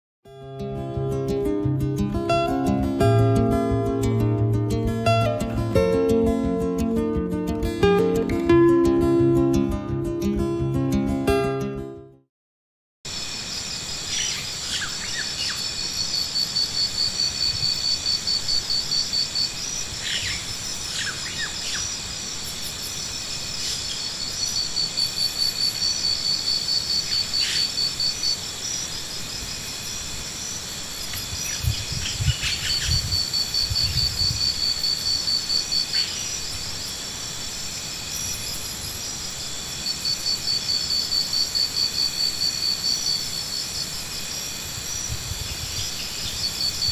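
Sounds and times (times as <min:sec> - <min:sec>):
insects chirping in rapid pulses: 0:13.1 - 0:46.9
steady high insect buzz: 0:13.1 - 0:46.9.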